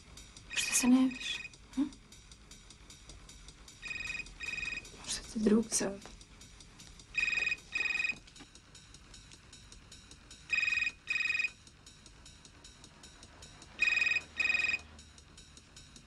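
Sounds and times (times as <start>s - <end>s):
mobile phone ringing: 0.5s - 1.6s, 3.8s - 5.0s, 7.1s - 8.2s, 10.5s - 11.6s, 13.8s - 14.9s.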